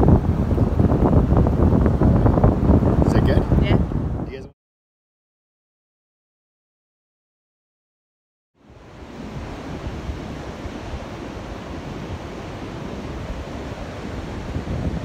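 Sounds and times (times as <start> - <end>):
ocean surf breaking on beach: 0.0 - 4.2, 8.6 - 15.0
wind rumble on microphone: 0.0 - 4.5, 8.6 - 15.0.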